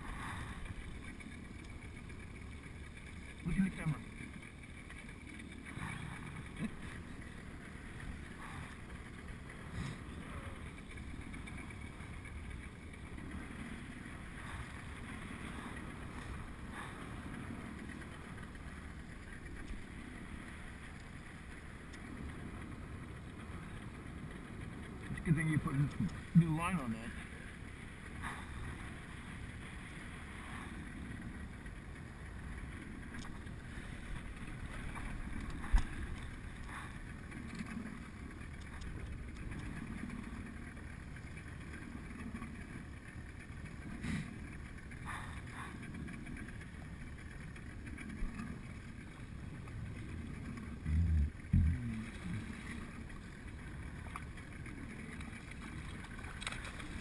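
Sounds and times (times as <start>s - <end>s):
water sloshing against boat: 0.0s - 57.0s
low thumps: 50.8s - 52.4s.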